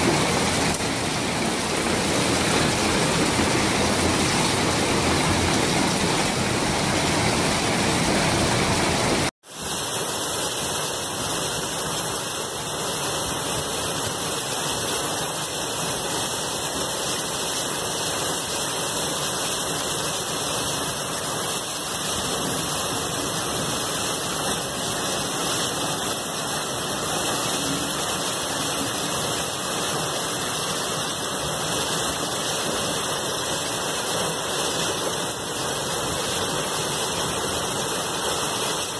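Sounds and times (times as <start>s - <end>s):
heavy rain and hail: 0.0s - 38.9s.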